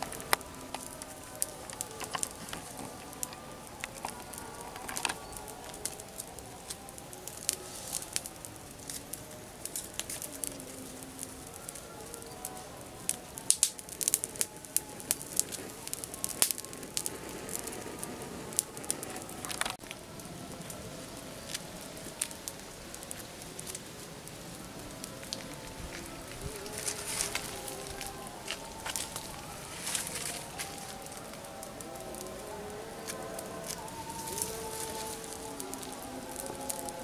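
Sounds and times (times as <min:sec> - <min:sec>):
campfire crackling: 0:00.0 - 0:37.0
sharp pops of fire: 0:00.0 - 0:37.0.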